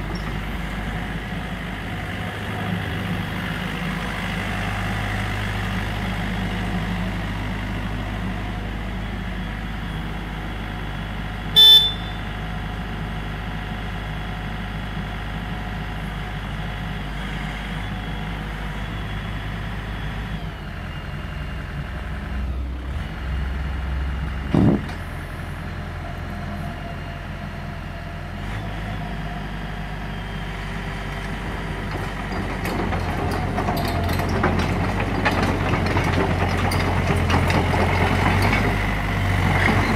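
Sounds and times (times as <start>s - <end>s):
excavator diesel engine running: 0.0s - 39.9s
short horn toot: 11.6s - 12.2s.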